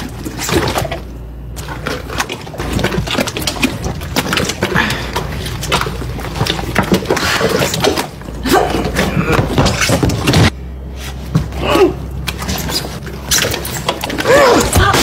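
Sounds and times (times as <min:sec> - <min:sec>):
water splashing in sink: 0:00.0 - 0:10.5, 0:12.2 - 0:15.0.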